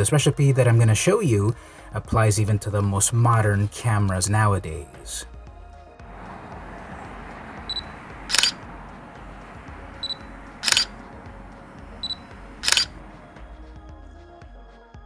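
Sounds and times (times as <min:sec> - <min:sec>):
camera autofocus beep: 0:07.7 - 0:08.6, 0:10.0 - 0:11.0, 0:12.0 - 0:13.0
camera shutter click: 0:08.3 - 0:08.6, 0:10.6 - 0:10.9, 0:12.6 - 0:13.0.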